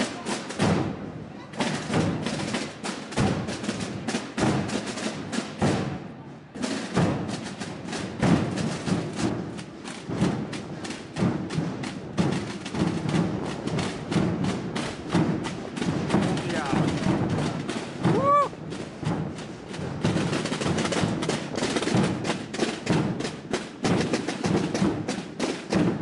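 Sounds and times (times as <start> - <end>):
marching drum corps: 0.0 - 26.0
bass drum thuds: 7.0 - 26.0.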